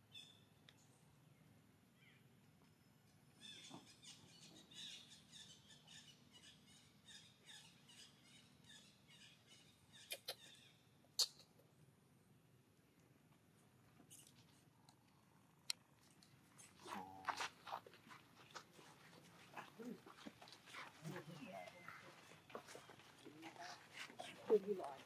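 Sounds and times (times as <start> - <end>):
monkey lip-smacking clicks: 10.0 - 10.5, 11.2 - 11.6.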